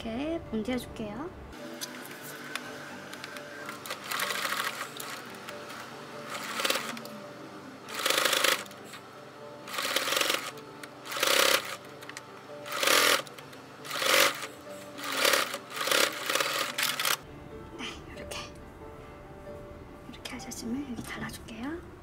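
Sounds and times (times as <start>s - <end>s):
sewing machine stitching: 3.8s - 5.3s, 6.3s - 7.0s, 7.9s - 8.7s, 9.7s - 10.5s, 11.1s - 11.8s, 12.7s - 13.3s, 13.9s - 17.2s.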